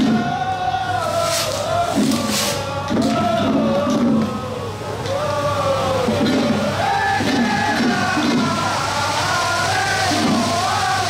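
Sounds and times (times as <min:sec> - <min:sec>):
crowd of men chanting: 0:00.0 - 0:11.0.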